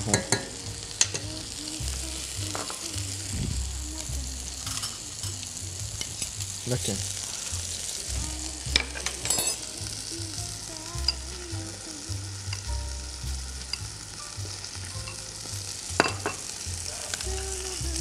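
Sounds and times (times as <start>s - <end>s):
meat sizzling in a frying pan: 0.0s - 18.0s
spoon clinking against a bowl: 4.6s - 5.0s, 9.0s - 9.6s.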